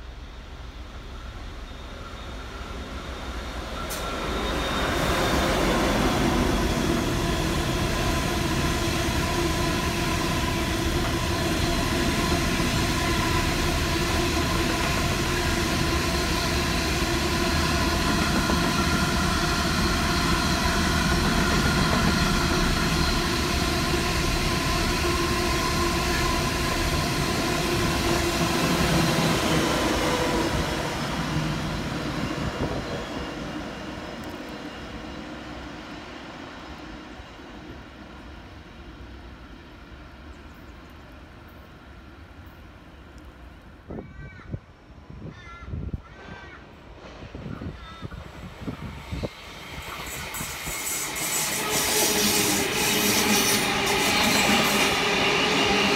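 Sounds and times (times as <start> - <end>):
diesel locomotive drone: 0.0 - 44.0, 45.9 - 55.9.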